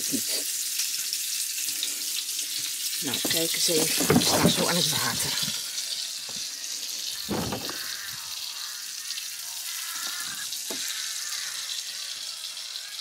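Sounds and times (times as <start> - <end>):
food sizzling in pan: 0.0 - 13.0
soft knocks: 7.3 - 7.8.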